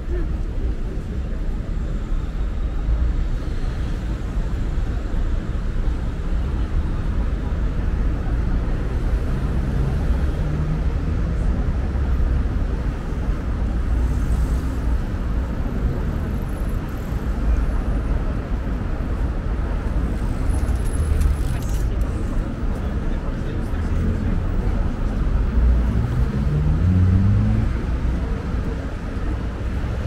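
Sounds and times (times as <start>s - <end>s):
passing cars rumbling: 1.2s - 30.0s.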